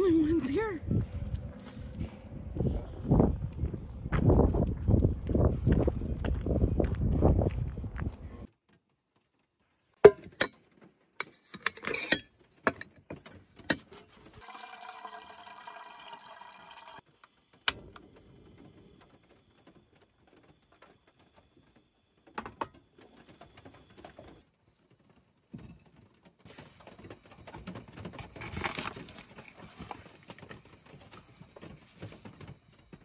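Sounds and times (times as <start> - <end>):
pot and kettle clicks and knocks: 10.0 - 10.6
faucet water filling pot: 14.4 - 17.0.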